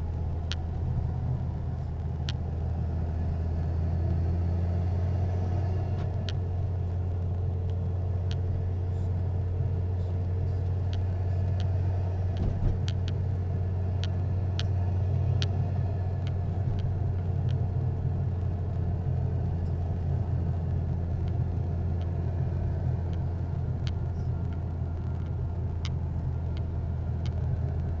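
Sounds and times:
engine and tyre rumble: 0.0s - 28.0s
light ticks: 0.1s - 0.7s, 2.0s - 2.4s, 7.2s - 9.2s, 10.0s - 13.2s, 13.9s - 28.0s.

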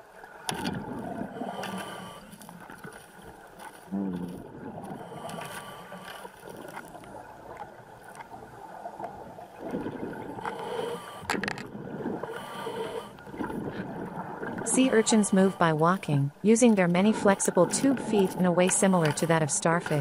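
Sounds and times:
underwater rushing hiss: 10.4s - 11.3s, 12.2s - 13.2s.

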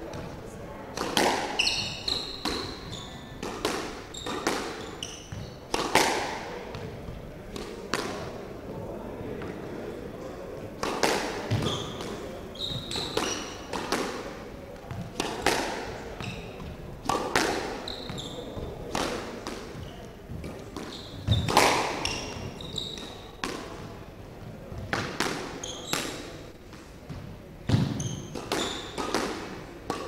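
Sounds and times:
squash ball hitting racket and wall: 0.0s - 8.5s, 10.7s - 30.0s
shoes squeaking on wooden floor: 1.6s - 3.4s, 4.0s - 5.6s, 11.5s - 13.6s, 16.2s - 16.8s, 17.8s - 18.8s, 19.7s - 23.4s, 25.6s - 26.2s, 27.7s - 29.1s.

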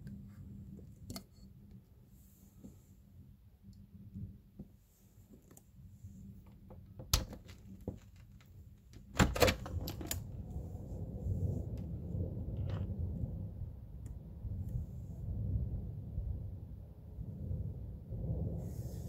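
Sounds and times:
thunder cracking and rumbling: 9.0s - 19.0s.

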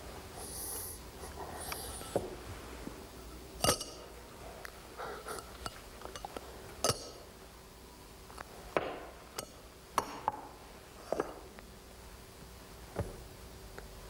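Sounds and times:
metal cups clinking together: 3.6s - 4.1s, 5.6s - 7.3s.

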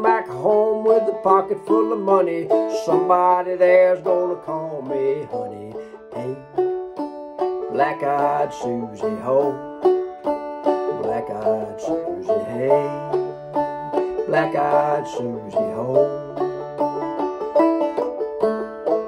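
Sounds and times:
banjo playing old-time tune: 0.0s - 19.0s
person singing or humming: 10.9s - 13.2s, 13.8s - 16.4s.

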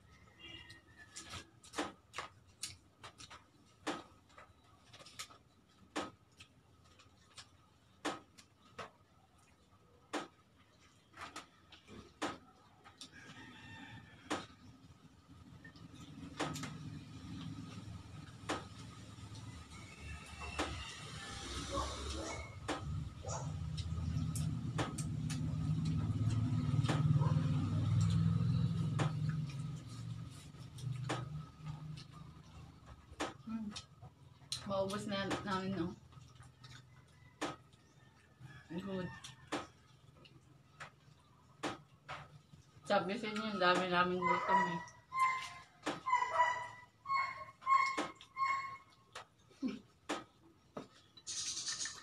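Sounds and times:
distant rooster crowing: 0.0s - 1.6s, 13.0s - 15.0s, 18.5s - 23.4s, 36.8s - 40.0s, 44.2s - 48.8s.

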